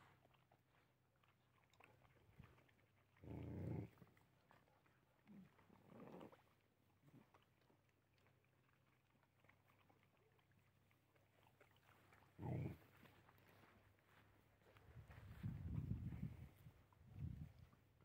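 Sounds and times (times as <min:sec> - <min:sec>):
dogs chewing: 0:00.1 - 0:18.0
dog growl: 0:03.2 - 0:04.1, 0:05.3 - 0:06.5, 0:12.4 - 0:12.9.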